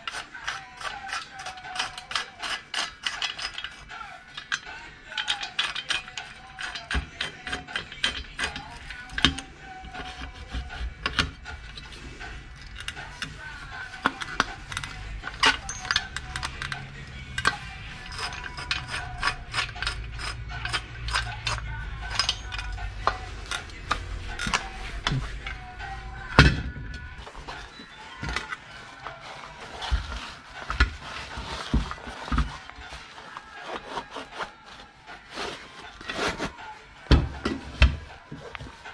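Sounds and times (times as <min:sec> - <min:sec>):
metal hinges clicking and ratcheting: 0:00.0 - 0:34.4.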